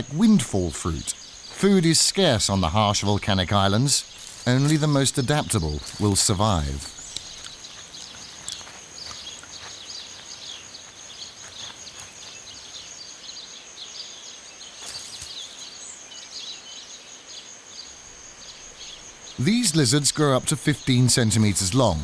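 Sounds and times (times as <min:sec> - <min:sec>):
high-pitched insect trill: 0:00.8 - 0:22.0
faint clicks: 0:06.8 - 0:08.7.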